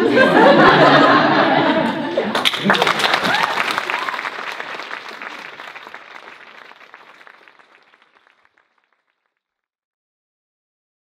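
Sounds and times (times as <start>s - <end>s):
audience applauding: 2.3s - 9.3s.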